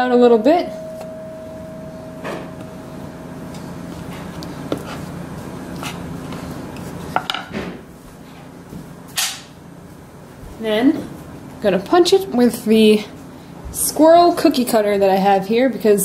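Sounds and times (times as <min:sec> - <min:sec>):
wooden spoon scraping dough: 0:03.9 - 0:07.2.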